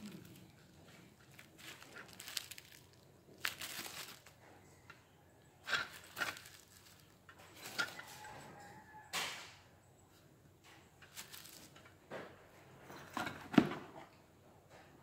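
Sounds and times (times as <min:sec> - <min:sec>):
bubble wrap crinkling: 0:00.0 - 0:04.5, 0:05.6 - 0:08.1, 0:11.1 - 0:11.8.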